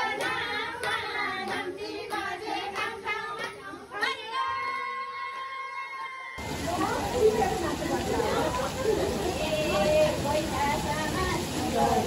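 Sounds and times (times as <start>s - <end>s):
hands clapping in time: 0.0s - 4.2s
group singing devotional song: 0.0s - 4.8s, 9.3s - 12.0s.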